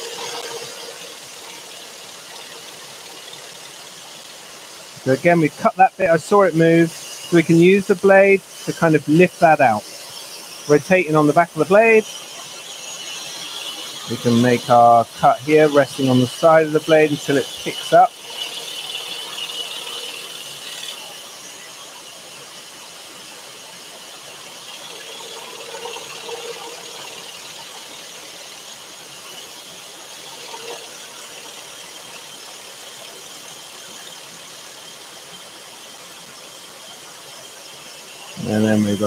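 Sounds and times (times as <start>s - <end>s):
scroll saw cutting wood: 0.0s - 35.0s, 35.8s - 39.0s
dust extractor running: 0.0s - 39.0s.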